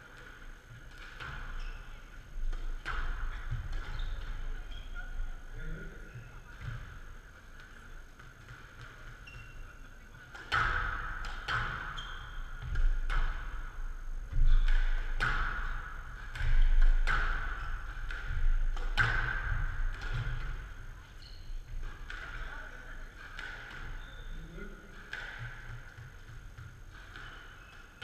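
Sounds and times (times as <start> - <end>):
squash ball cracks and bounces: 2.3 - 4.7, 10.3 - 28.0.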